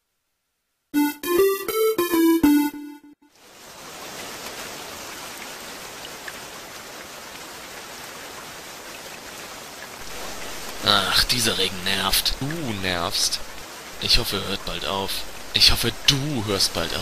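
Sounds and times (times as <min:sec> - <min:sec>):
short musical jingle: 0:01.0 - 0:03.2
steady rain hiss: 0:03.3 - 0:17.0.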